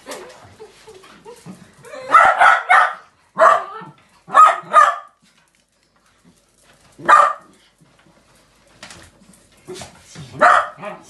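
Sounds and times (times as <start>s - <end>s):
dogs barking: 2.0s - 5.2s, 7.0s - 7.6s, 10.4s - 11.0s.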